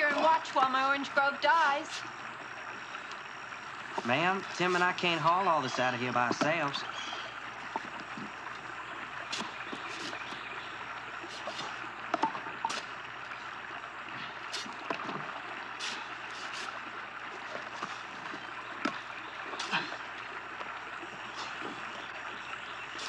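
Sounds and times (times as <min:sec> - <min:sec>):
flowing creek water: 0:00.0 - 0:23.0
short splashes and knocks: 0:03.9 - 0:08.6, 0:09.2 - 0:13.5, 0:14.1 - 0:23.0.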